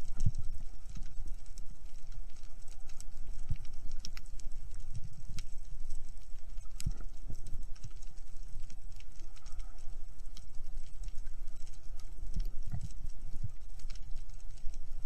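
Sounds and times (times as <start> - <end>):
sharp clicks and crackles: 0.0 - 15.0.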